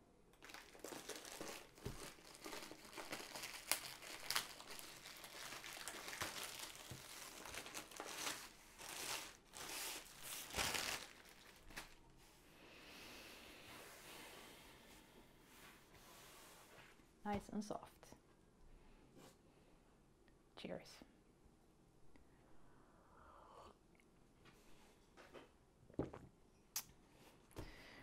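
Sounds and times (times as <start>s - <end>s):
plastic bag crinkling: 0.4s - 12.0s.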